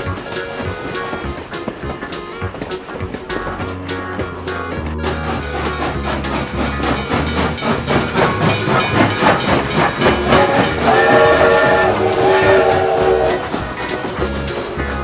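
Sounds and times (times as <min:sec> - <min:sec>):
toy train chugging sound effect: 0:05.0 - 0:15.0
toy steam whistle: 0:06.8 - 0:14.4.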